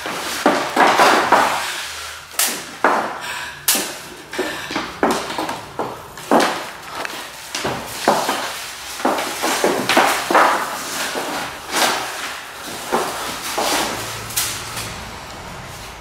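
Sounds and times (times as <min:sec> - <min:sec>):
feet stamping on wooden floor: 0:04.4 - 0:14.0.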